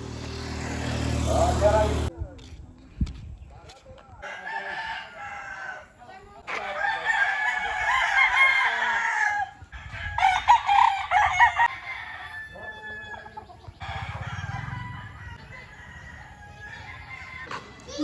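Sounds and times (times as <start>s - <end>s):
quiet yard sound: 0.0s - 18.0s
rooster crowing: 4.2s - 5.9s, 6.6s - 17.8s.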